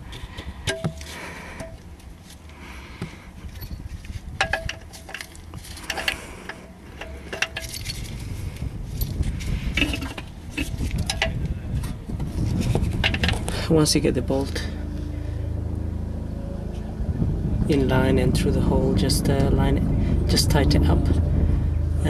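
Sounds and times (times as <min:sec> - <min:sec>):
rubbing and handling noise: 0:00.0 - 0:13.8.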